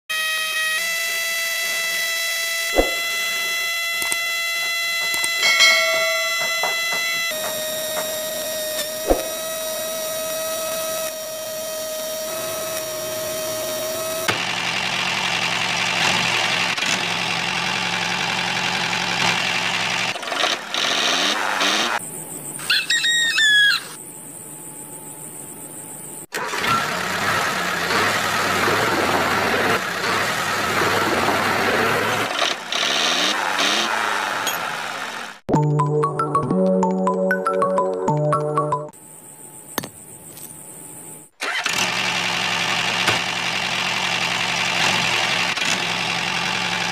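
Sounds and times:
small electric motor whining: 0.1s - 5.5s, 7.4s - 14.4s
tractor engine running: 0.8s - 22.0s, 26.4s - 35.5s, 41.4s - 46.9s.

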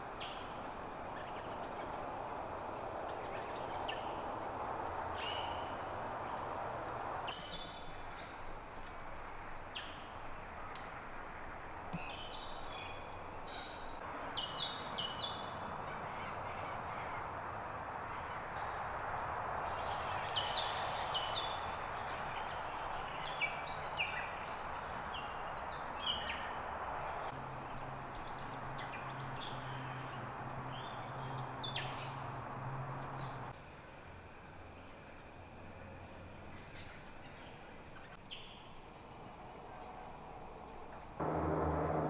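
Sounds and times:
birds chirping: 0.0s - 17.4s, 18.0s - 33.6s
steady background hiss: 0.0s - 42.0s.

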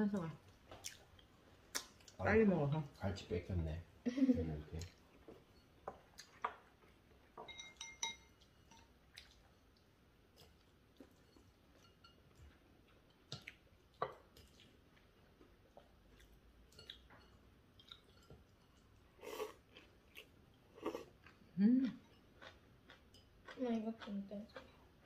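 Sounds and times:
faint chewing: 0.1s - 2.2s, 8.3s - 25.0s
chopsticks clinking on bowls: 7.4s - 9.0s, 10.4s - 12.6s, 22.0s - 23.6s.

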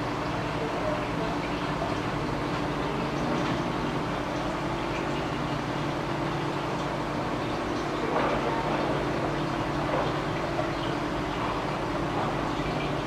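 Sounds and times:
aquarium air stones bubbling: 0.0s - 13.0s
low equipment hum: 0.0s - 13.0s.

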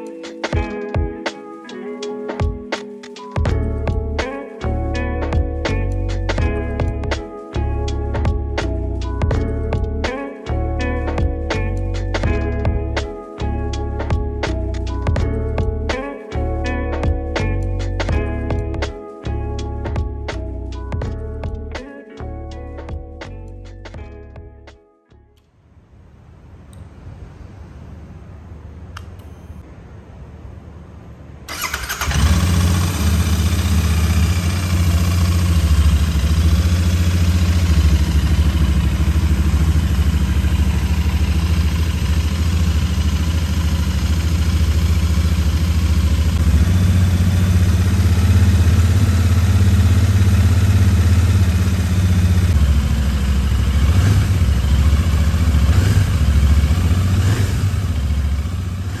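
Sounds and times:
motorcycle engine idling: 31.5s - 59.0s
motorcycle engine revving: 31.5s - 59.0s.

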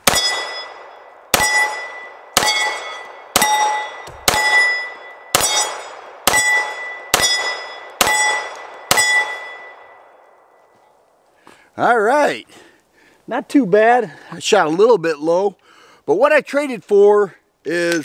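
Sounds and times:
pistol shots: 0.0s - 10.0s
steel target ringing: 0.0s - 10.6s.

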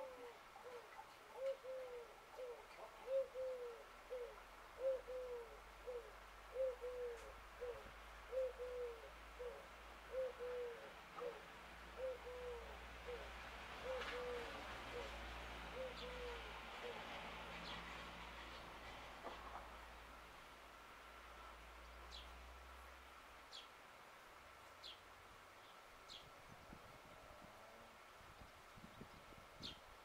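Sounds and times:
dove cooing: 0.0s - 17.8s.

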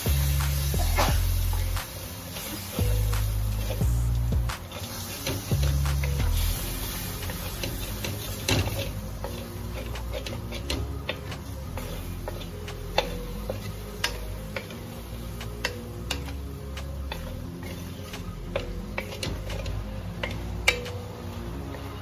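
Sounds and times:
wooden spatula scraping metal pan: 0.2s - 14.8s.

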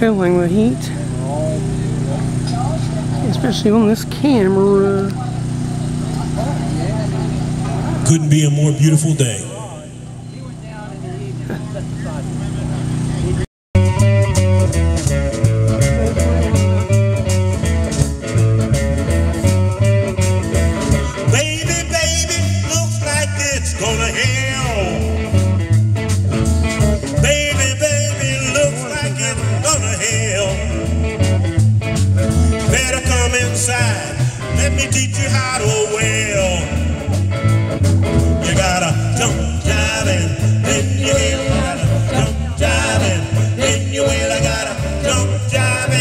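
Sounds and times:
bass line: 0.0s - 46.0s
electric guitars: 0.0s - 46.0s
live band through speakers: 0.0s - 46.0s.

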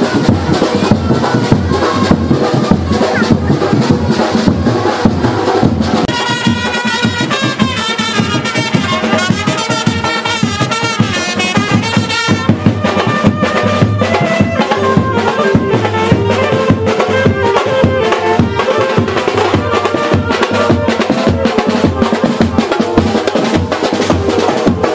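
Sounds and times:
fast steady drumming: 0.0s - 24.9s
brass horn melody: 4.9s - 24.9s.

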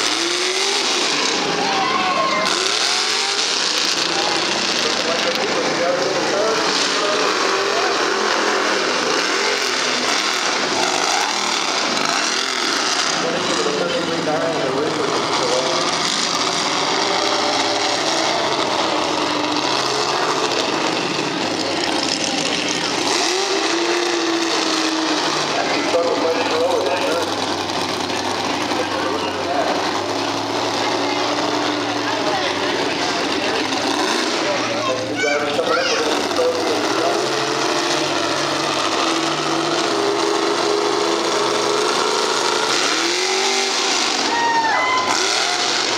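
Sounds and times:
truck engine running hard: 0.0s - 45.9s.

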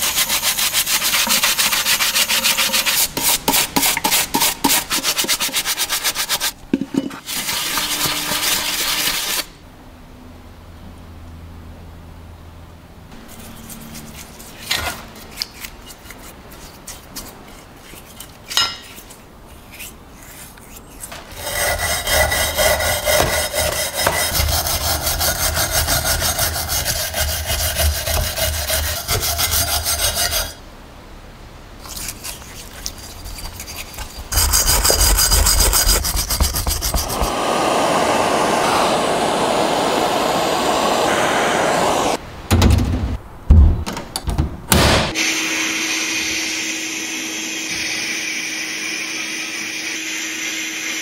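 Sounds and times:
bristle brush scrubbing metal: 0.0s - 9.5s, 13.2s - 30.6s, 31.8s - 37.8s
gas torch hissing: 37.0s - 42.2s.

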